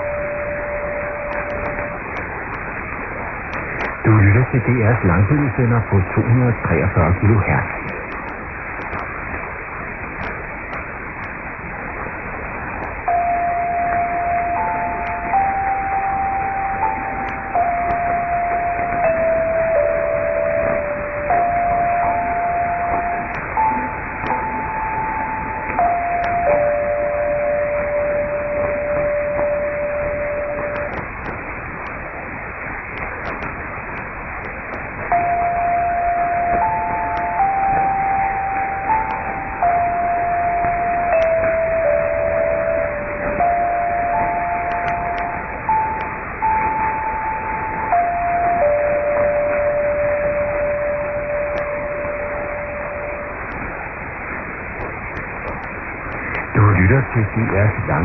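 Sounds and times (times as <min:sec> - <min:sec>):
slow electronic tone tune: 0:00.0 - 0:02.7, 0:12.8 - 0:31.4, 0:34.6 - 0:58.0
radio crackles: 0:00.0 - 0:58.0
radio reception hiss: 0:00.0 - 0:58.0.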